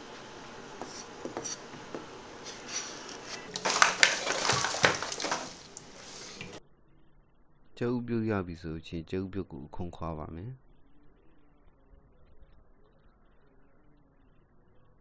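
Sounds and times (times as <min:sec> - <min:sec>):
tap water running into sink: 0:00.0 - 0:06.6.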